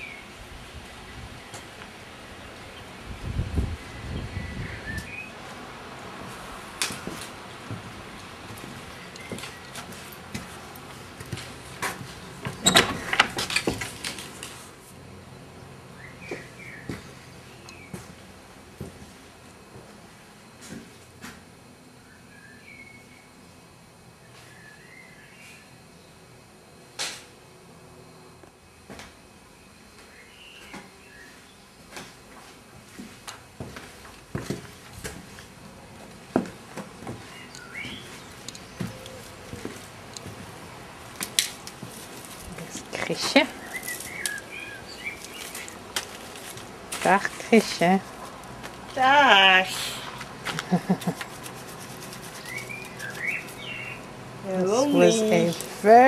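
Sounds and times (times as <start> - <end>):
bird chirping: 43.5 - 45.6, 52.3 - 54.1.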